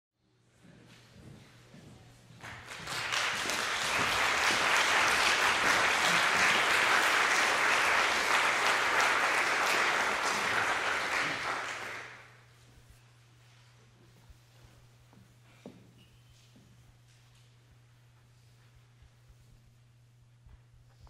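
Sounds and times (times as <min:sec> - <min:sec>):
audience applauding: 0:02.4 - 0:12.4.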